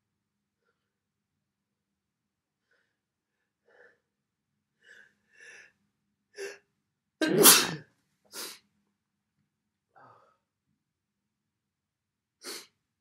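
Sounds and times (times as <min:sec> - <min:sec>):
man sneezing: 0:07.2 - 0:07.8.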